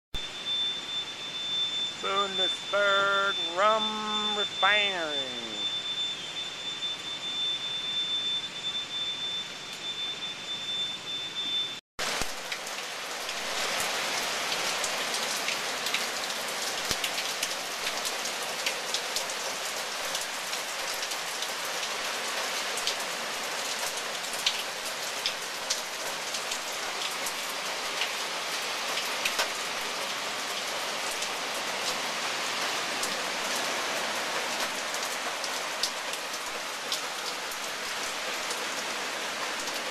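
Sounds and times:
rain falling: 0.2 - 6.1, 12.0 - 39.9
high-pitched tone: 0.2 - 10.7.

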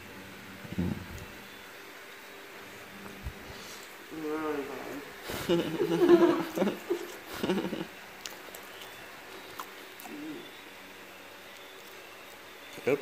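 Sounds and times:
low steady background noise: 0.0 - 13.0
low wordless vocal murmurs: 0.6 - 1.2, 4.1 - 5.8, 10.0 - 10.6.

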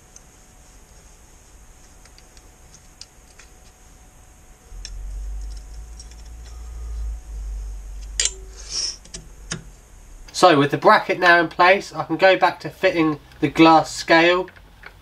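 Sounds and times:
low rumble: 4.4 - 13.4.

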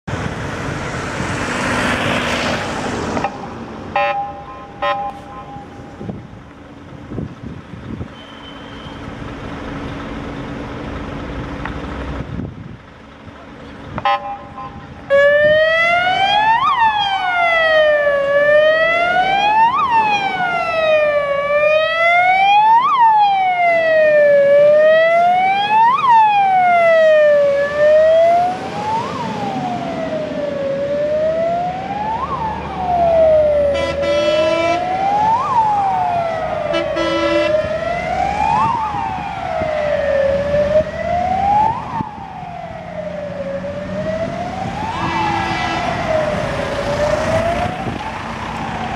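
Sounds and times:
wailing fire engine siren: 0.1 - 6.4, 14.0 - 48.9
diesel engine: 0.1 - 48.9
truck horn blasts: 3.2 - 5.9, 8.1 - 9.0, 14.0 - 14.9, 33.7 - 34.9, 36.7 - 37.7.

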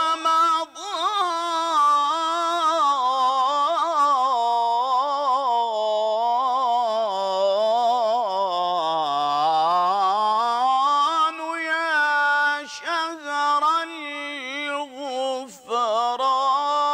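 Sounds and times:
man singing solo: 11.0 - 16.9.

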